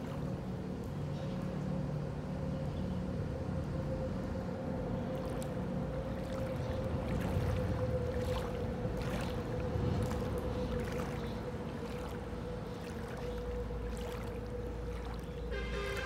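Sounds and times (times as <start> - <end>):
steady motor hum: 0.0 - 16.0
faint ticks or splashes: 5.1 - 16.0.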